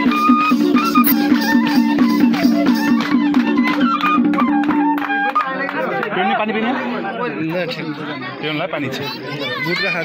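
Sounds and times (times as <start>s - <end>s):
stepping melody: 0.2s - 4.7s.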